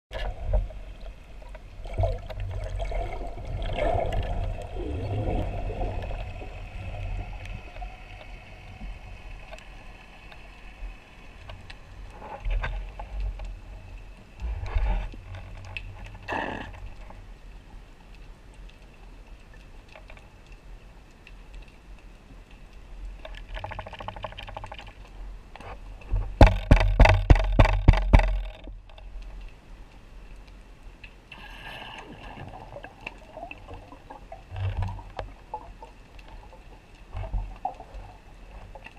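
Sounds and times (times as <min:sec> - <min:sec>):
low underwater rumble: 0:00.1 - 0:17.4
knocks and clicks: 0:26.4 - 0:28.7.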